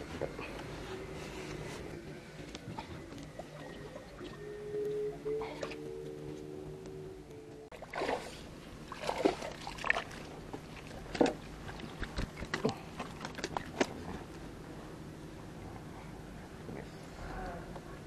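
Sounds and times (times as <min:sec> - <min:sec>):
fish splashing in water: 0:07.7 - 0:13.9.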